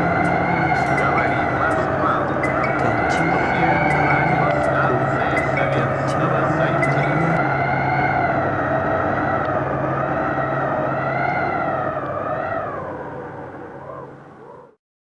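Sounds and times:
held musical chord: 0:00.0 - 0:10.0.

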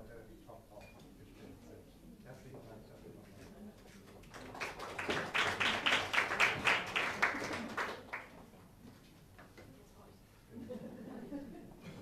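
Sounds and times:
audience applauding: 0:04.3 - 0:08.5.

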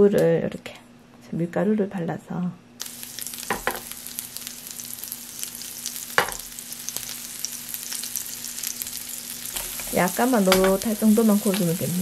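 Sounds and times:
tofu sizzling in oil: 0:02.8 - 0:12.0.

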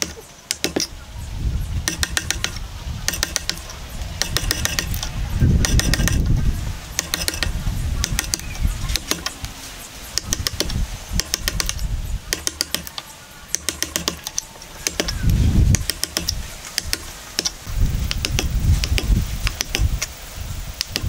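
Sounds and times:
chisel cutting wood: 0:00.0 - 0:01.0, 0:01.8 - 0:09.5, 0:10.2 - 0:20.0
dull thumps: 0:00.0 - 0:01.0.

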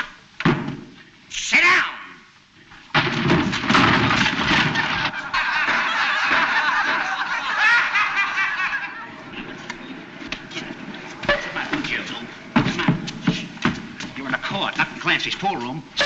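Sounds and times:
crowd laughing: 0:03.9 - 0:11.8.

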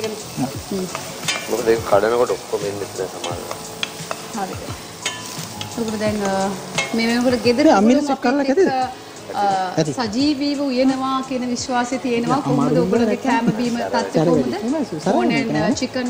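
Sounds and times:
onions sizzling in a pan: 0:00.0 - 0:16.0
spoon clicking against pan: 0:00.8 - 0:01.6, 0:03.2 - 0:07.4
person speaking: 0:12.3 - 0:13.2.

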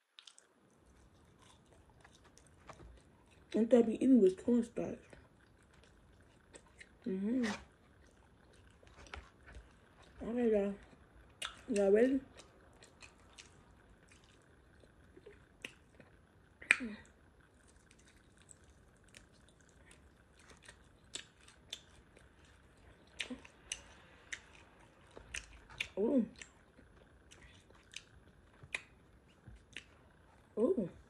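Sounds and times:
person chewing with wet mouth clicks: 0:00.2 - 0:03.5, 0:11.4 - 0:11.7, 0:12.3 - 0:16.8, 0:17.6 - 0:30.2.

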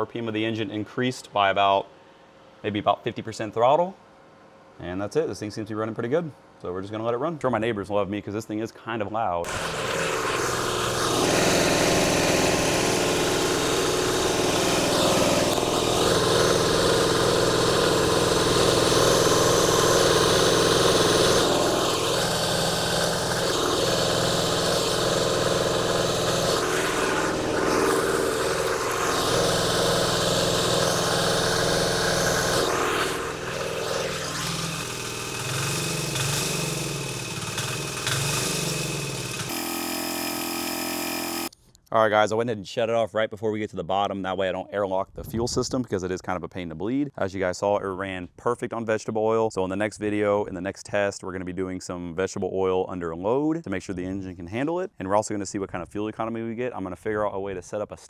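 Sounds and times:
diesel engine running: 0:09.5 - 0:41.5.

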